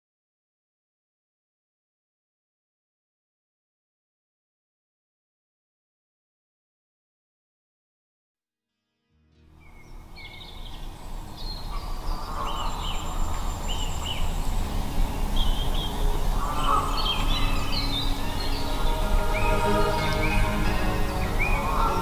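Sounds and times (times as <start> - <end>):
soft background music: 9.2 - 22.0
songbirds chirping: 9.4 - 22.0.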